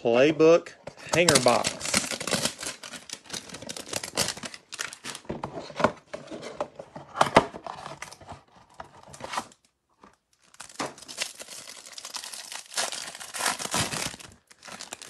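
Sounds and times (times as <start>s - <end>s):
plastic wrapper crinkling and tearing: 1.1s - 5.3s, 9.0s - 15.0s
cardboard box ripping: 10.6s - 15.0s.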